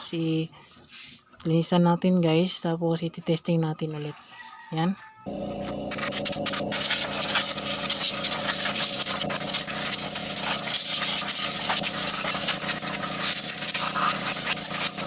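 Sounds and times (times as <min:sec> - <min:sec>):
machine hum and hiss: 0:05.3 - 0:15.0.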